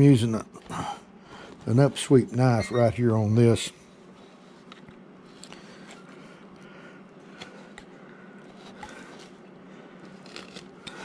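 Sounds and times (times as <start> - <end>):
low steady hum: 0.0 - 11.0
knife cutting wood shavings: 10.0 - 11.0.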